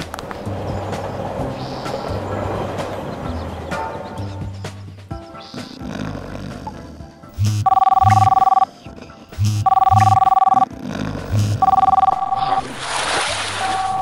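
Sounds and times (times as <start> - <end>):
background music: 0.3 - 12.6
telephone two-note ring: 7.6 - 8.6, 9.6 - 10.6, 11.6 - 12.6.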